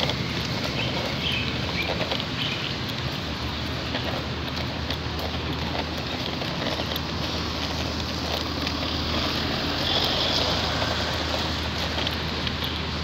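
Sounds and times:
traffic on wet road: 0:00.0 - 0:13.0
van driving past on wet road: 0:07.2 - 0:13.0.

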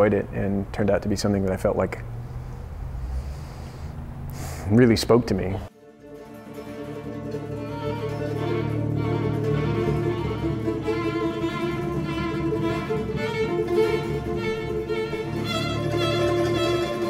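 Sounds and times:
low cello-like held notes: 0:05.7 - 0:17.0
violin: 0:05.7 - 0:17.0.

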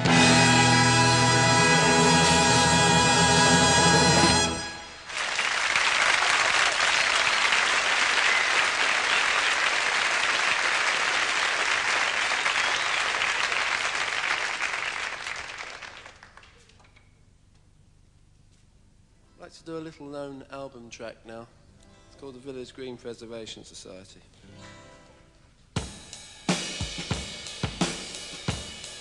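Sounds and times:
audience applauding: 0:05.0 - 0:16.6.

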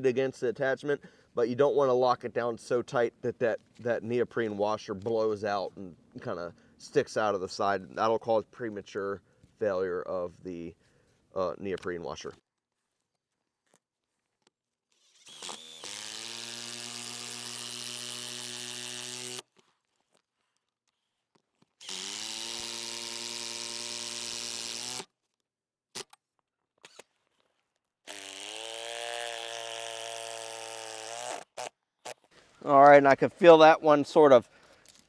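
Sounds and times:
cordless driver driving screws: 0:14.9 - 0:19.6, 0:21.6 - 0:25.1, 0:26.8 - 0:27.2, 0:28.1 - 0:32.3.

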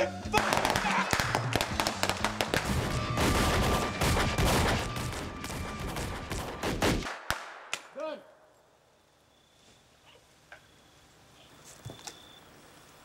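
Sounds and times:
music: 0:00.0 - 0:06.8
gunshot-like bangs: 0:00.4 - 0:07.8.

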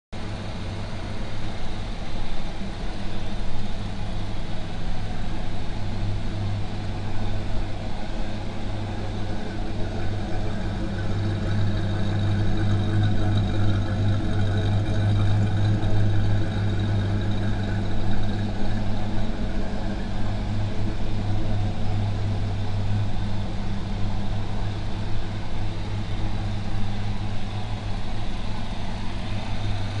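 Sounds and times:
car engine idling: 0:00.2 - 0:30.0.

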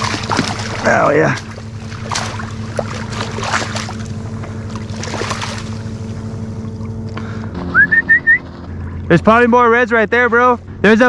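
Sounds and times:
fish splashing in net: 0:00.0 - 0:06.0
steady motor hum: 0:00.0 - 0:11.0.

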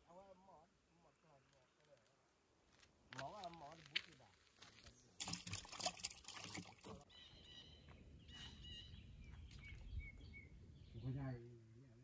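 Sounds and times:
footsteps on dry ground: 0:02.7 - 0:05.7
songbirds chirping: 0:03.3 - 0:12.0.

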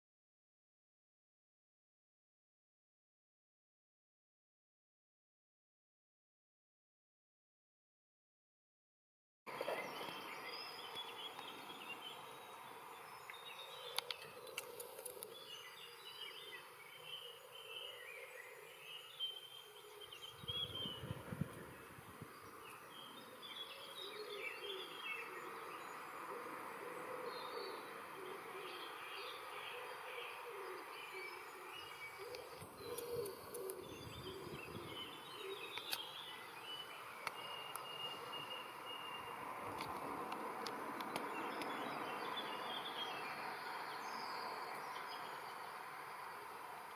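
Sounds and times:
small birds chirping: 0:09.5 - 0:46.9
steady outdoor hiss: 0:09.5 - 0:46.9.

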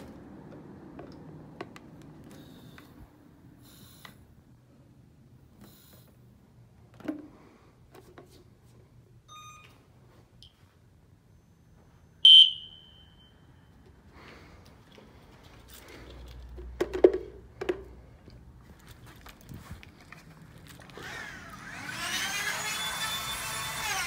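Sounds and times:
fire alarm horn blast: 0:12.2 - 0:13.3.

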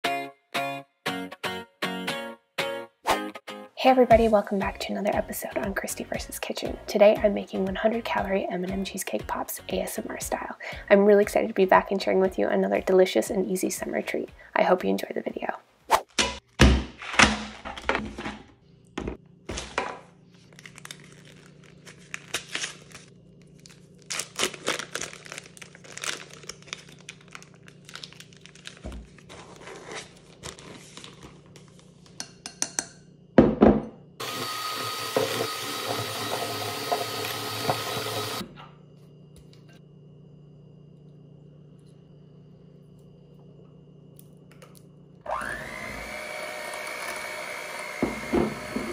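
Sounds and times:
packaging rustling: 0:19.5 - 0:32.0
foil wrapper crinkling: 0:20.2 - 0:32.1
electric hand mixer running: 0:34.2 - 0:38.4, 0:45.2 - 0:48.9.

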